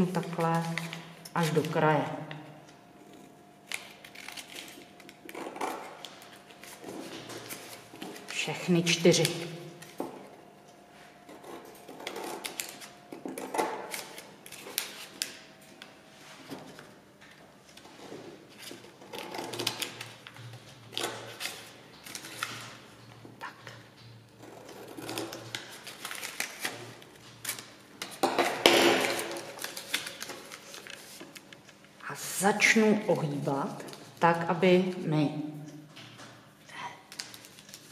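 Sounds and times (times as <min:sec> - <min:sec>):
paper rustling: 0:03.7 - 0:08.4, 0:25.0 - 0:27.8, 0:29.0 - 0:31.9, 0:37.1 - 0:37.9.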